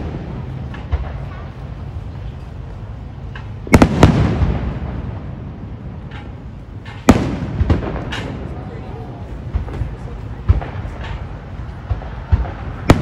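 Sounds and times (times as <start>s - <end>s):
firework shells bursting: 2.9s - 13.0s.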